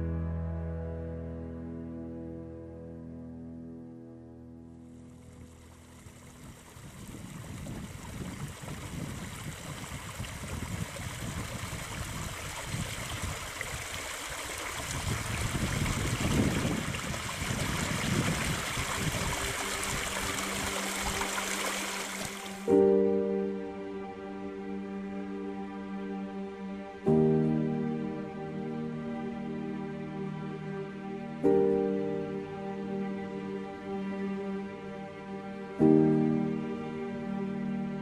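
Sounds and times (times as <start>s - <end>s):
stream running: 4.8s - 23.3s.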